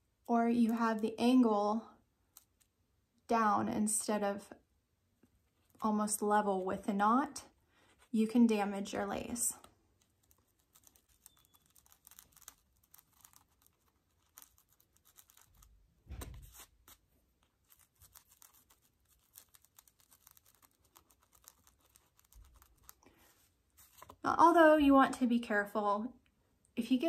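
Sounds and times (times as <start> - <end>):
soft thump: 16.0 - 16.6.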